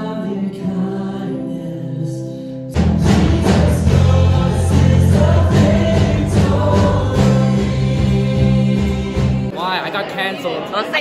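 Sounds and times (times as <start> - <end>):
congregation singing worship song: 0.0 - 9.6
low bass notes: 2.8 - 9.5.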